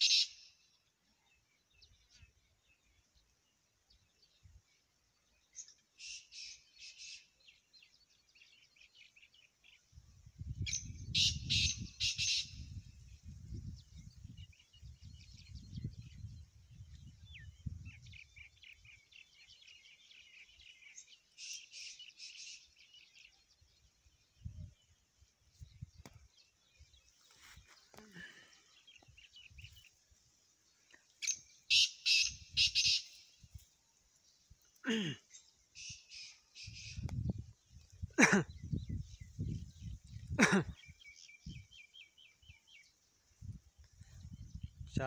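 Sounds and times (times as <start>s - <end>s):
small birds chirping: 0.0s - 45.0s
francolin calling: 10.6s - 12.8s, 31.2s - 33.5s.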